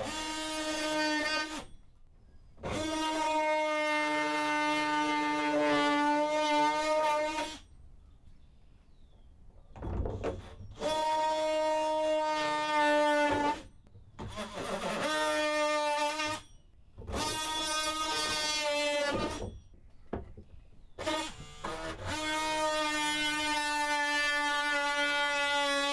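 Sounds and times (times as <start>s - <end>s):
oscillating multi-tool buzzing: 21.0s - 25.9s.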